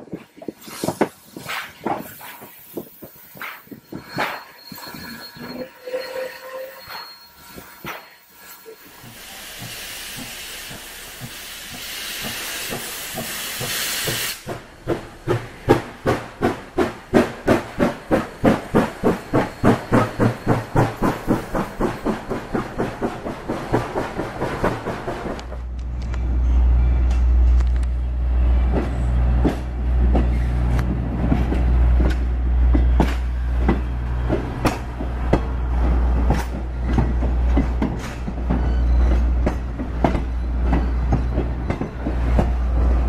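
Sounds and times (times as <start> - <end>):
steam locomotive chuffing: 0.6 - 25.7
steam hissing: 7.4 - 14.6.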